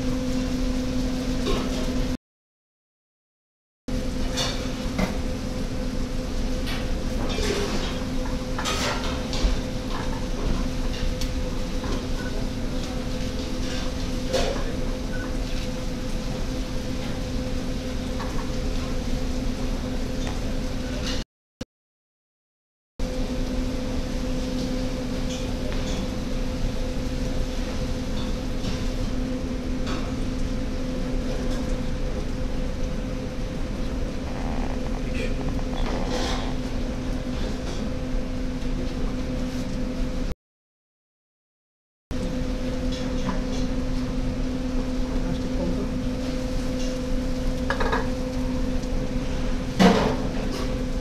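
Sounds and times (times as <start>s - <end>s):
steady low hum: 23.0s - 40.3s
utensils scraping pots and pans: 35.2s - 36.7s.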